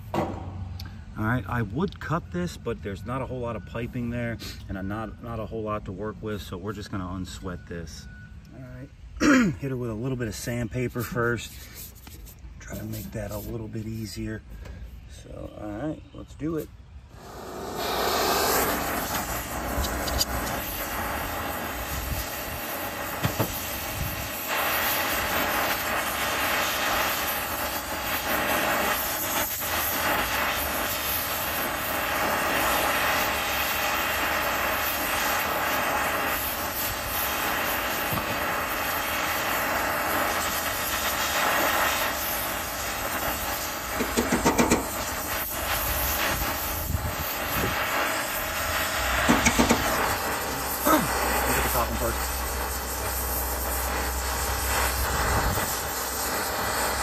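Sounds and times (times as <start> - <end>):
torch flame hissing: 17.1 - 57.0.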